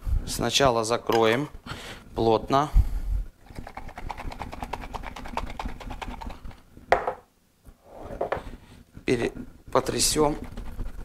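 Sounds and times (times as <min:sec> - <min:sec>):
jar knocking on counter: 0:06.9 - 0:07.2.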